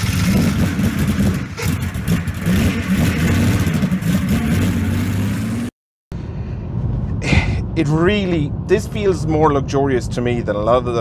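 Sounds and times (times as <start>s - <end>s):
car engine revving: 0.0s - 5.7s.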